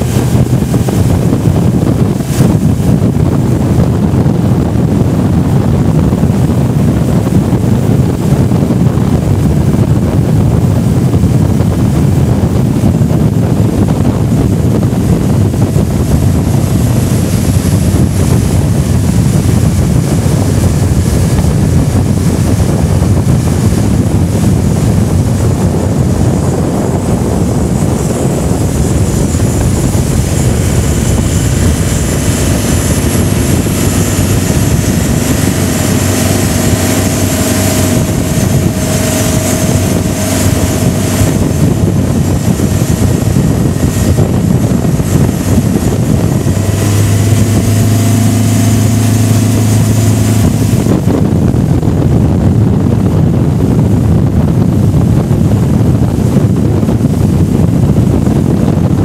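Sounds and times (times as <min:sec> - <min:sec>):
outboard motor running steadily: 0:00.0 - 0:59.0
water rushing past boat: 0:00.0 - 0:59.0
wind rushing: 0:00.0 - 0:59.0.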